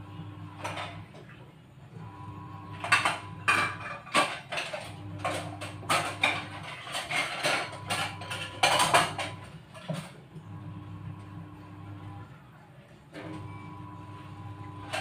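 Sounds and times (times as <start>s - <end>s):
dishes and utensils clinking: 0.6s - 1.4s, 2.7s - 10.2s.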